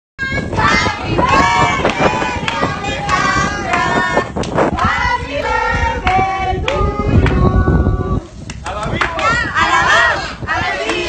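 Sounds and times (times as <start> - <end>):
people singing and shouting: 0.2 - 8.4, 9.2 - 11.0.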